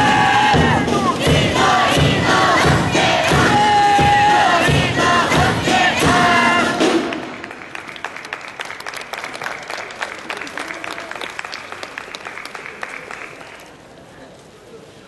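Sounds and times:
wind band playing: 0:00.0 - 0:07.7
crowd cheering: 0:00.0 - 0:13.9
audience applause: 0:06.2 - 0:13.9.

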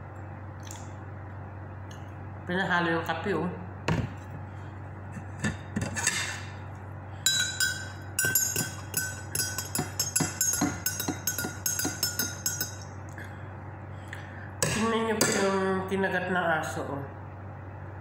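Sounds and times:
spoon clinking in glass mug: 0:07.3 - 0:12.9.

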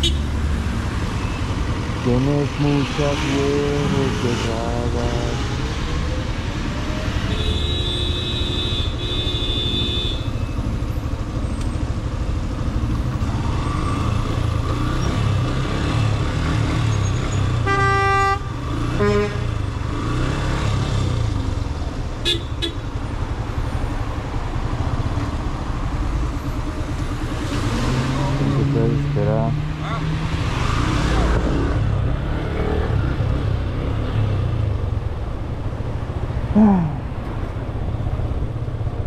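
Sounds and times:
vehicle horns honking: 0:00.0 - 0:00.3, 0:07.3 - 0:10.4, 0:17.6 - 0:19.6, 0:22.2 - 0:22.9.

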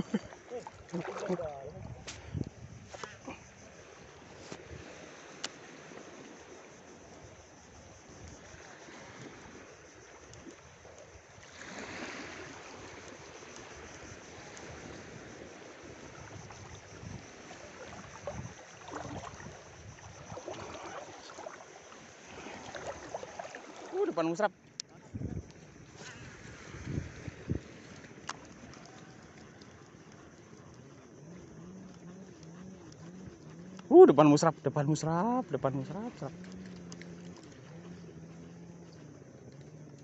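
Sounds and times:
small waves lapping: 0:00.0 - 0:40.0
wind: 0:00.0 - 0:40.0.

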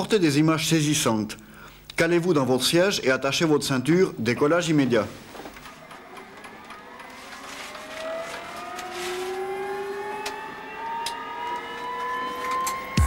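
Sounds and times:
helicopter turbine whine spooling up: 0:05.9 - 0:13.0.

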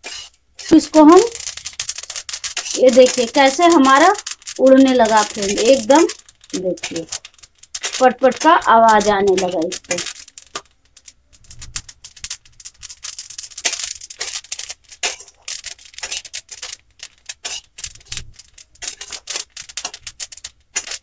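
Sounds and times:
steel spatula scraping pan: 0:00.0 - 0:00.9, 0:02.5 - 0:03.2, 0:17.4 - 0:17.8
seeds crackling and popping: 0:00.0 - 0:21.0.

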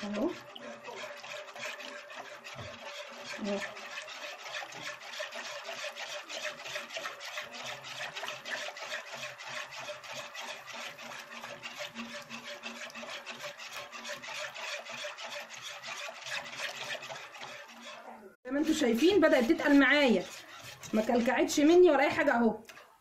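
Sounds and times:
utensil scraping a metal pot: 0:00.0 - 0:22.8.

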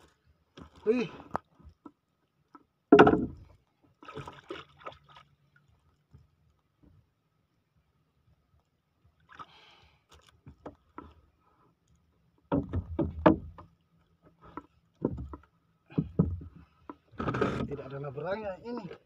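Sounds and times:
knocks on wooden hull: 0:02.9 - 0:03.5, 0:12.5 - 0:13.7, 0:15.0 - 0:16.6.

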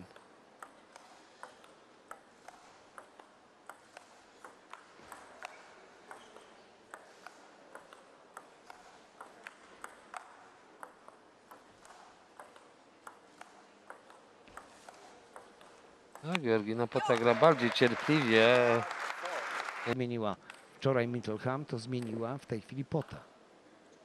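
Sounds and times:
table tennis ball ticks: 0:00.0 - 0:16.4, 0:22.0 - 0:22.2.

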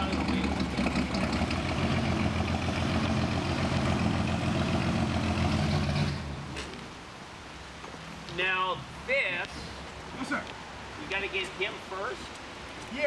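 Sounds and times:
forklift engine running: 0:00.0 - 0:06.5.

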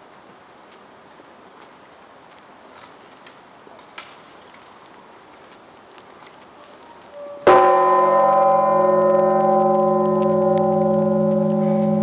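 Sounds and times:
large church bell ringing: 0:07.4 - 0:12.0.

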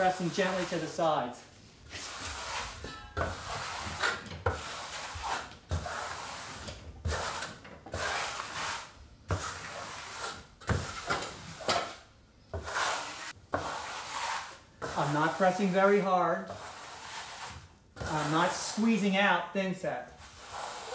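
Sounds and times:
trowel scraping membrane: 0:00.0 - 0:01.1, 0:01.9 - 0:19.0, 0:20.1 - 0:20.9
trowel knocking on wall: 0:03.2 - 0:06.0.

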